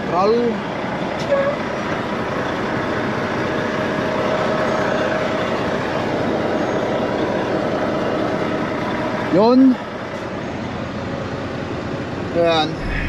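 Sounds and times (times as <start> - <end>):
truck engine idling: 0.0 - 13.0
refrigeration unit running: 10.8 - 13.0.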